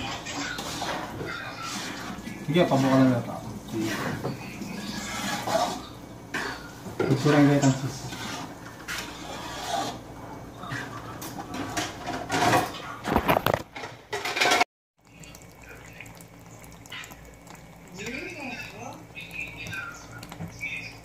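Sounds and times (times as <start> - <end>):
spatula scraping sauce in wok: 0.3 - 3.0, 4.8 - 7.2, 7.9 - 10.0.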